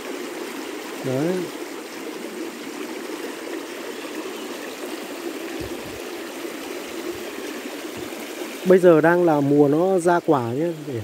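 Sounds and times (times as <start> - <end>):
mountain stream flowing: 0.0 - 11.0.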